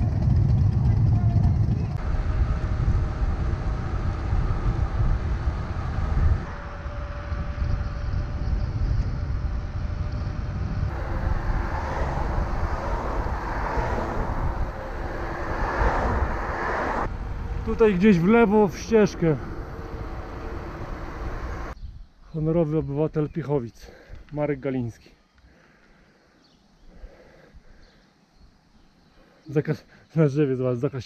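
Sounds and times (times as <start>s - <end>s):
wind rumbling over microphone: 0.0s - 22.2s.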